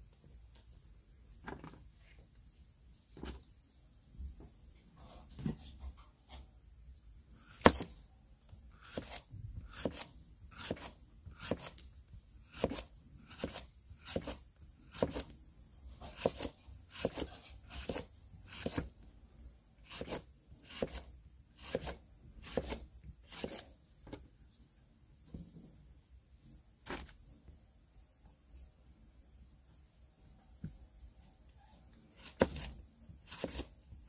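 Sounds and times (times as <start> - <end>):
knife slicing green onion: 7.4 - 8.0, 8.7 - 11.8, 12.4 - 19.0, 19.8 - 24.2, 32.1 - 33.8.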